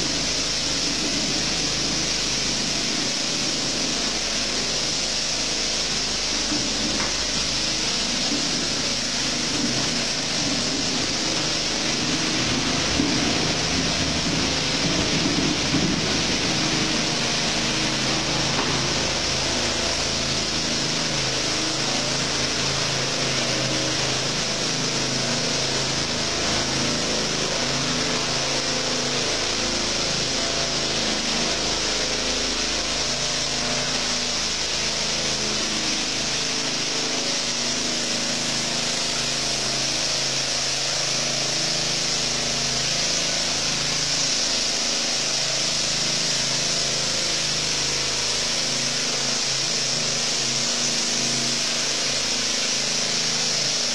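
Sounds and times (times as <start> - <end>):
machinery engine hum: 0.0 - 39.9
constant hiss: 0.0 - 53.9.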